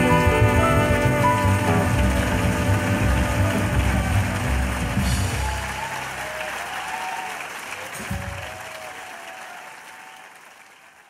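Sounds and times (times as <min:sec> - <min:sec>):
audience applause: 0:00.0 - 0:11.0
people cheering: 0:00.0 - 0:11.0.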